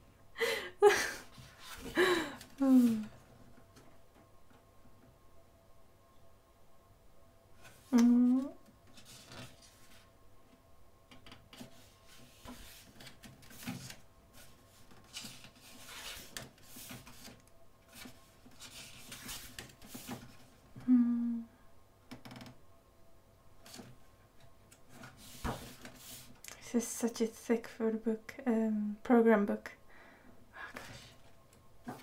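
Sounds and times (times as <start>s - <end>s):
woman humming: 2.0s - 3.2s, 7.9s - 8.7s, 20.8s - 21.6s
paper pages turning: 12.1s - 20.2s.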